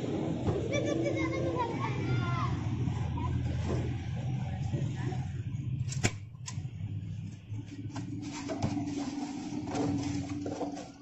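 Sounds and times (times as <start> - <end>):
foam boxes being handled: 7.6 - 11.0.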